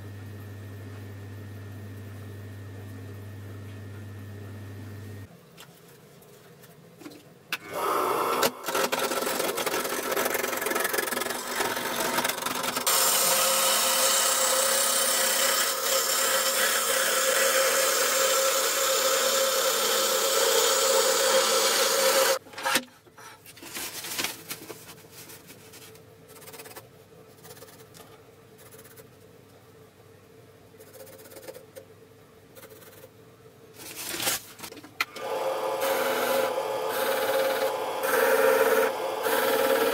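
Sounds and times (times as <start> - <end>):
turning tool cutting wood: 7.7 - 22.4, 35.1 - 39.9
wood lathe humming: 7.7 - 22.4, 35.2 - 39.9.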